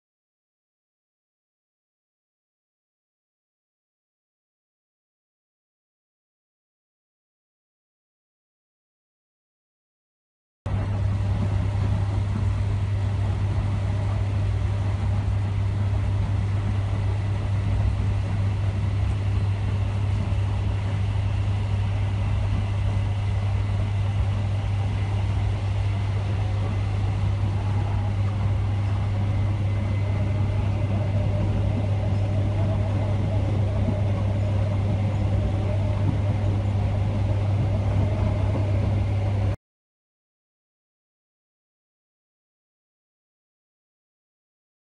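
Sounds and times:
constant low hum: 0:10.7 - 0:39.6
train running rumble: 0:10.7 - 0:39.6.

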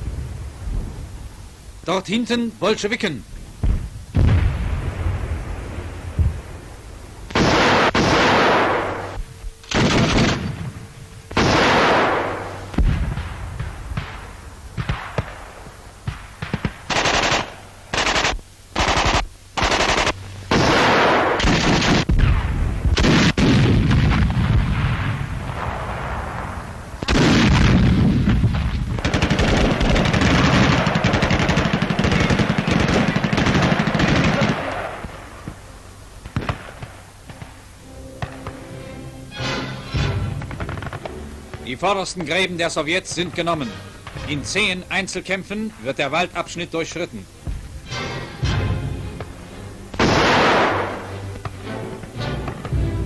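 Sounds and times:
machine-gun bursts: 0:07.3 - 0:09.0, 0:09.7 - 0:10.6, 0:11.4 - 0:12.4, 0:16.4 - 0:22.1, 0:29.0 - 0:34.9
loud gunshots with echo: 0:07.3 - 0:35.3, 0:50.0 - 0:51.1.

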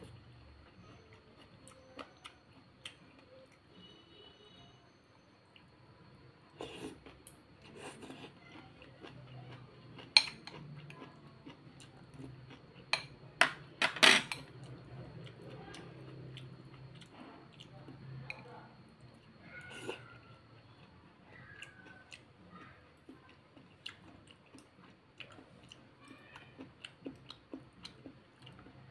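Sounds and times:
quiet eating noises: 0:00.0 - 0:28.9
utensils clinking on ceramic bowl: 0:10.1 - 0:10.6, 0:12.9 - 0:14.5.

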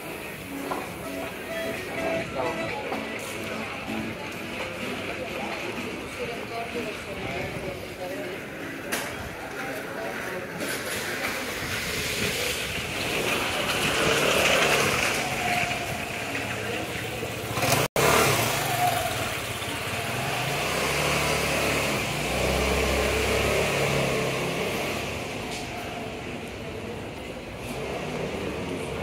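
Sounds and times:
vehicle engine humming: 0:00.0 - 0:09.8
voices of passers-by: 0:00.0 - 0:29.0.

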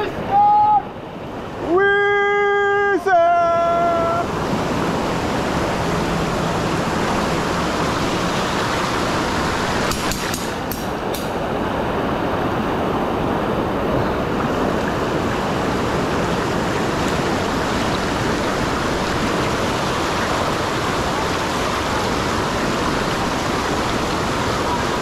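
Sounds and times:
river rushing over rapids: 0:00.0 - 0:25.0.

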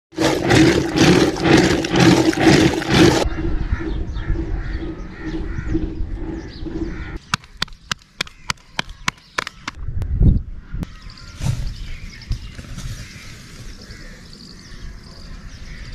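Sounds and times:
milk churning splashes: 0:00.1 - 0:03.3
faint birds calling: 0:03.2 - 0:15.9.

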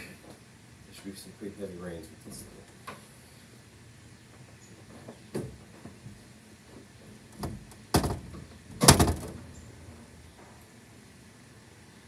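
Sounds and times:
knocks and clunks: 0:07.4 - 0:09.5.

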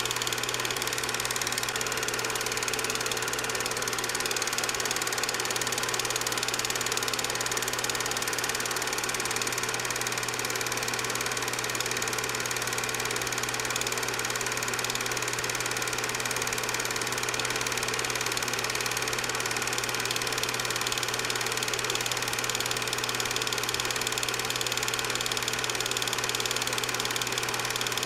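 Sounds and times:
projector motor hum: 0:00.0 - 0:09.2
film projector clatter: 0:00.0 - 0:28.0.

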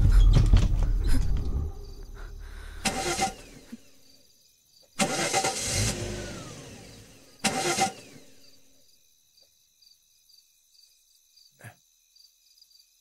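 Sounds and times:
engine cranking on starter: 0:01.0 - 0:03.8, 0:05.0 - 0:08.4.

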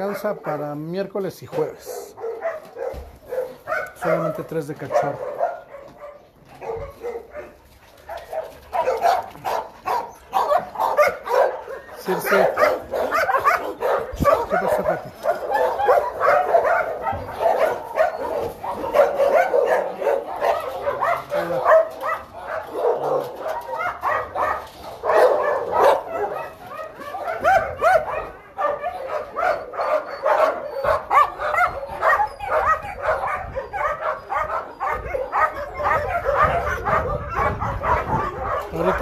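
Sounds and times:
dogs barking and yipping: 0:00.0 - 0:39.0.

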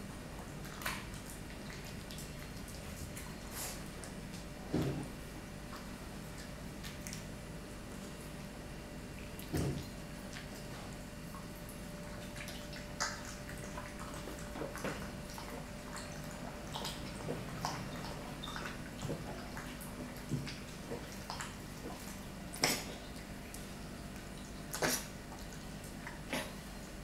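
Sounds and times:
dog lapping water: 0:09.4 - 0:26.7.

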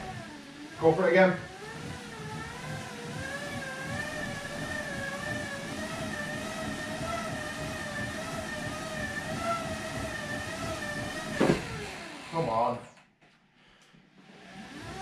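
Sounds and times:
bicycle rollers whining: 0:00.0 - 0:12.8, 0:14.2 - 0:15.0.

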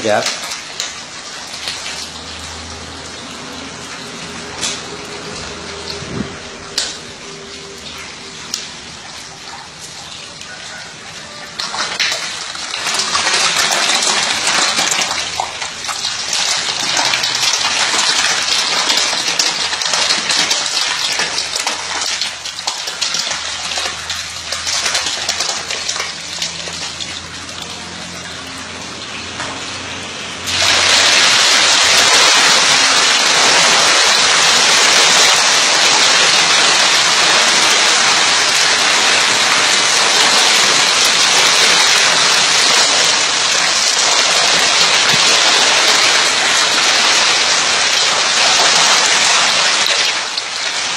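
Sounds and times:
fish splashing in water: 0:00.0 - 0:50.9.

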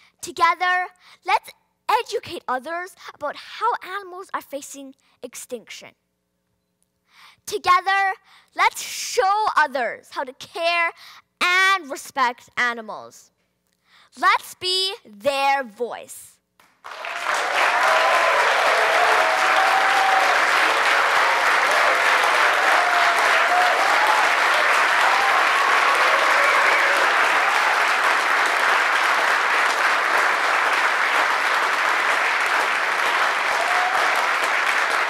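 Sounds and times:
audience applauding: 0:16.8 - 0:35.0.

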